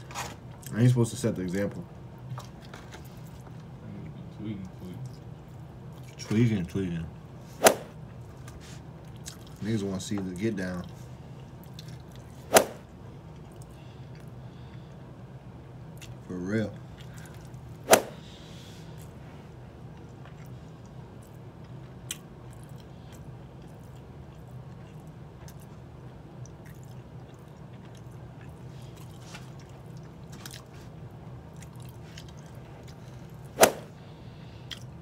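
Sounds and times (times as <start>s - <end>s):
sharp knocks: 7.6s - 7.9s, 17.9s - 18.2s.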